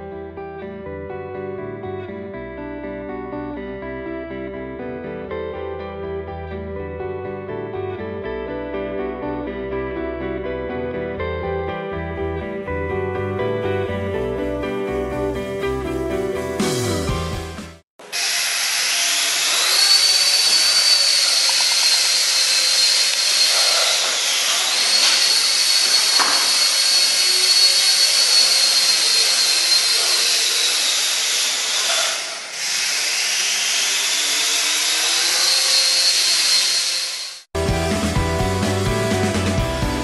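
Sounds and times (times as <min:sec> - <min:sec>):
toy helicopter motor whining: 0:18.0 - 0:37.5.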